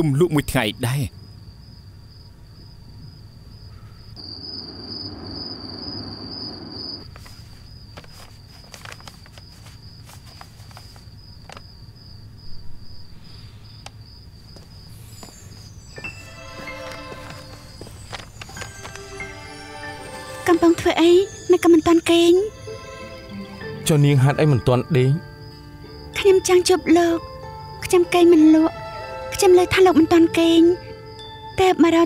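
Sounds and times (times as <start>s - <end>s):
crickets chirping: 0.0s - 32.0s
rustling: 6.0s - 11.8s, 16.6s - 19.1s
music: 15.8s - 32.0s.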